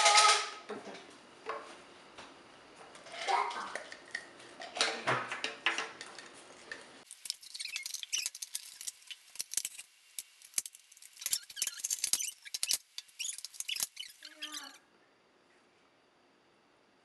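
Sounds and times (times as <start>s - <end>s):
short high squeaks: 7.4s - 8.4s, 11.2s - 14.8s.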